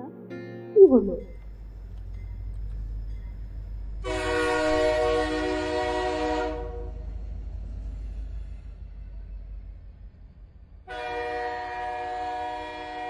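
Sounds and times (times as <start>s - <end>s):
train rumble: 0.8s - 13.0s
train horn blast: 4.0s - 7.2s, 10.8s - 13.0s.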